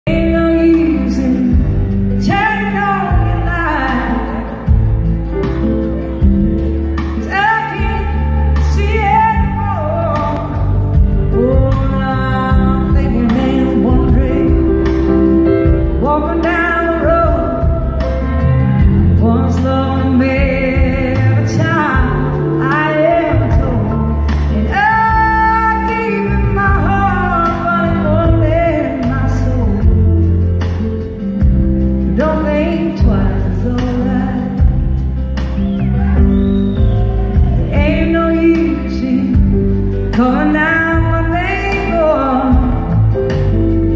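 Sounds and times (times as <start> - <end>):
woman singing lead vocal: 0.0 - 4.9, 7.0 - 30.4, 32.0 - 35.0, 36.2 - 43.5
live rock blues band: 0.1 - 43.9.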